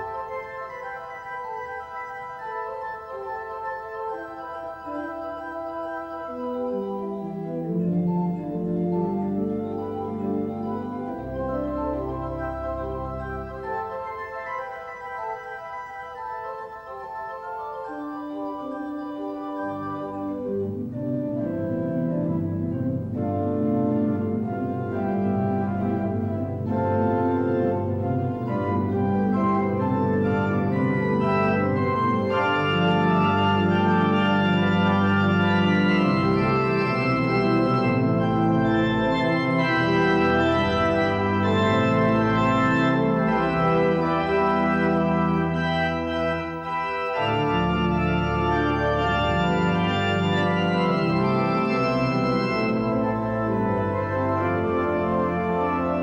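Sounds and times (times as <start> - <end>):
organ playing held chords: 0.0 - 56.0.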